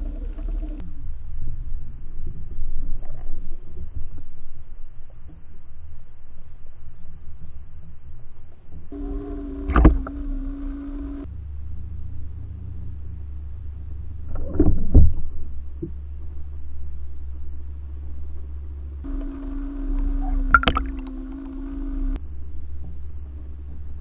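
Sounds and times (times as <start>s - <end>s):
low droning tone: 0.0s - 24.0s
underwater low rumble: 0.0s - 24.0s
sharp knocks underwater: 9.6s - 10.2s, 20.2s - 22.0s.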